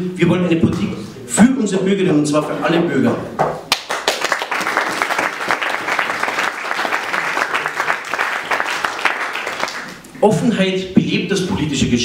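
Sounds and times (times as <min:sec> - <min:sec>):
audience applauding: 0:03.7 - 0:10.0.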